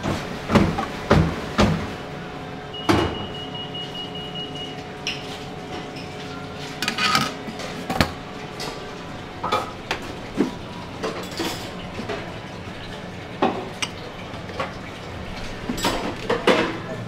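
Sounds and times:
steady background hum: 0.0 - 17.0
dishes clinking on steel counter: 5.1 - 8.8.

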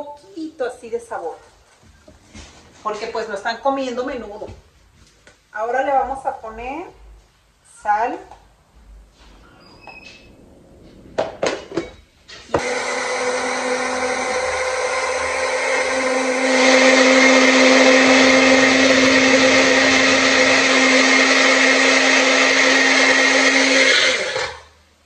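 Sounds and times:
blender motor humming: 12.6 - 24.8.

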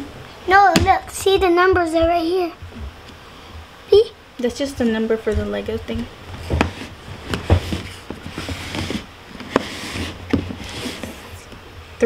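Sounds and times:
plastic box scraping: 6.3 - 11.5.

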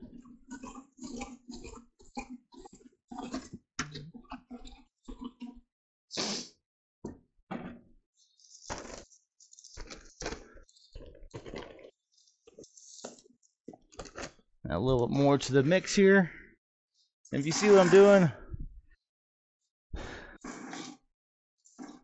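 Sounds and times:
stick stirring wet concrete: 17.4 - 18.2.

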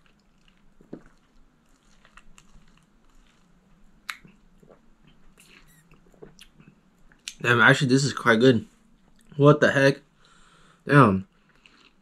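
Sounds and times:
swallowing: 0.0 - 7.4
wet mouth clicks: 4.0 - 4.8, 5.4 - 7.4
sipping through a straw: 4.2 - 6.4.

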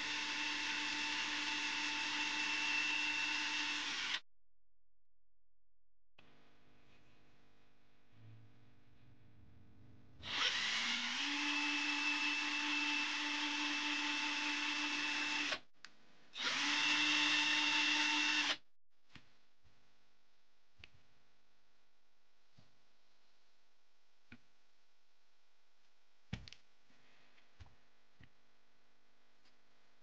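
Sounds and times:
cordless drill whining: 0.0 - 4.2, 10.2 - 15.6, 16.4 - 18.6.

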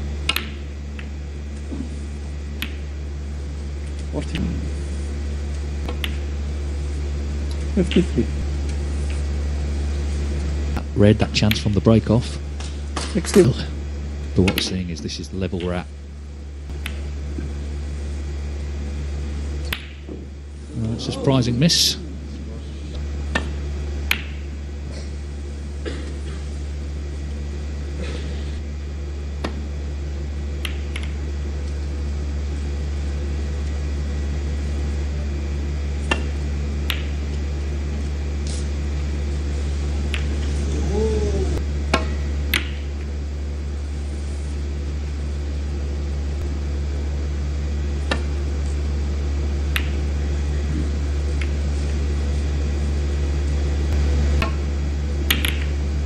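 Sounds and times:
steady low hum: 0.0 - 56.0
snooker balls clicking: 0.2 - 1.2, 5.8 - 6.3, 11.1 - 12.1, 14.4 - 14.8, 16.7 - 17.5, 19.6 - 20.3, 22.9 - 24.5, 30.6 - 31.2, 36.0 - 37.4, 40.1 - 40.6, 41.9 - 43.1, 49.7 - 50.1, 55.2 - 55.8.

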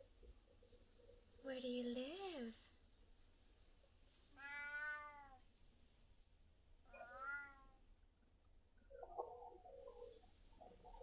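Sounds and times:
cat meowing: 4.4 - 5.4, 6.9 - 7.8.

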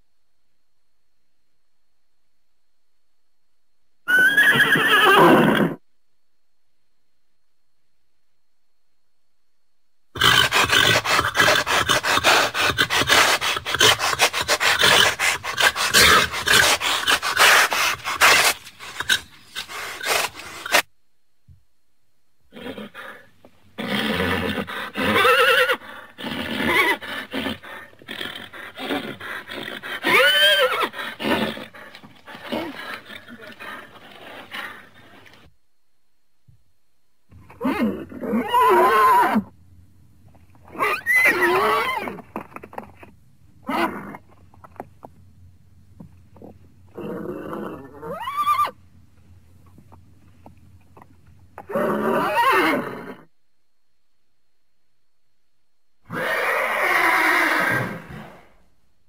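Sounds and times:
horse whinnying: 4.1 - 5.8, 10.2 - 20.9, 22.5 - 35.4, 37.5 - 39.6, 40.7 - 42.7, 46.9 - 48.8, 51.6 - 53.3, 56.1 - 58.5.

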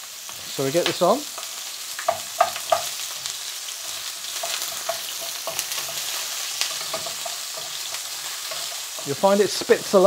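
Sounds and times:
onion and garlic sizzling in oil: 0.0 - 10.0
wooden spatula scraping a pan: 3.8 - 10.0.

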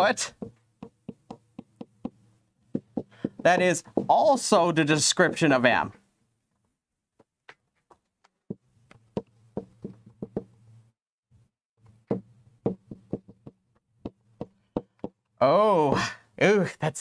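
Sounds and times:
pen tapping on writing surface: 0.4 - 3.7, 8.5 - 10.5, 12.1 - 15.2.

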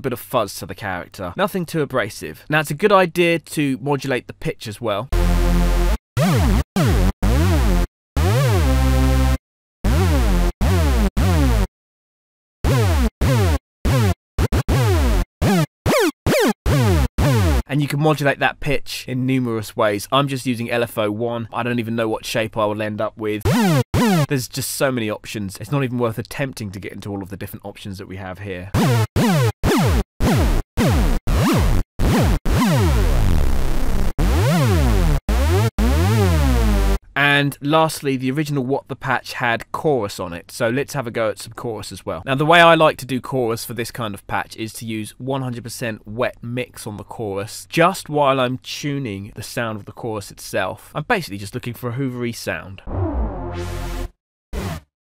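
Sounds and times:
buzzy synth notes sweeping in pitch: 5.2 - 11.7, 12.6 - 17.6, 23.5 - 24.3, 28.8 - 37.0, 52.9 - 54.8.

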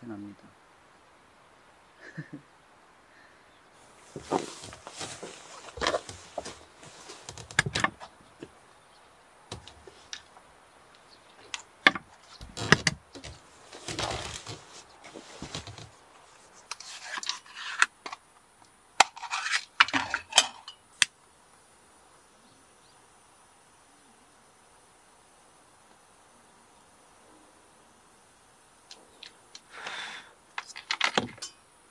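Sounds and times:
small objects being handled: 3.8 - 8.6, 11.0 - 21.1, 30.5 - 31.6.

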